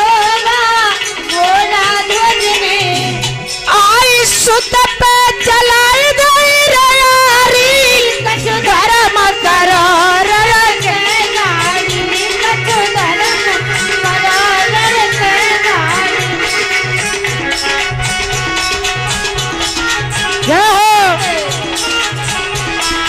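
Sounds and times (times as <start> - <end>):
woman singing wordless line: 0.0 - 16.4, 20.5 - 21.6
dholak drum beat: 0.0 - 23.0
harmonium playing: 0.0 - 23.0.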